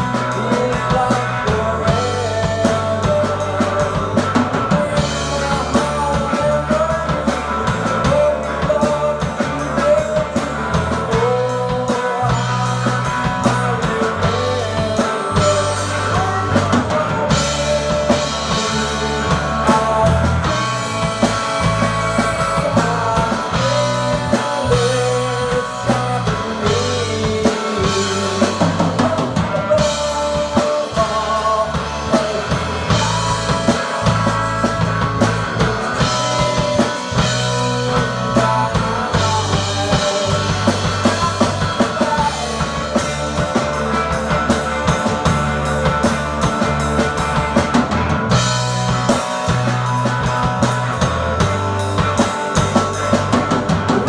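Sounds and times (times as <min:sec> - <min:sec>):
drum kit playing: 0:00.0 - 0:54.0
electric guitar: 0:00.0 - 0:54.0.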